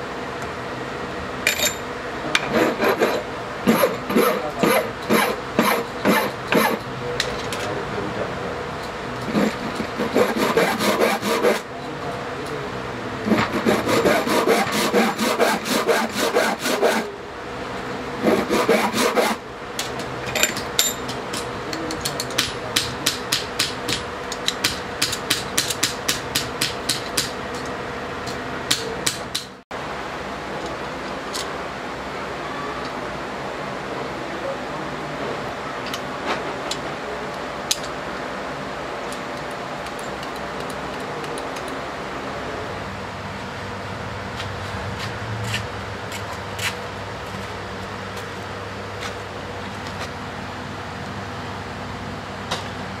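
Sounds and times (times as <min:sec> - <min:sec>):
hand file rasping on metal: 0:02.4 - 0:06.8, 0:09.2 - 0:11.7, 0:13.3 - 0:17.1, 0:18.2 - 0:19.4.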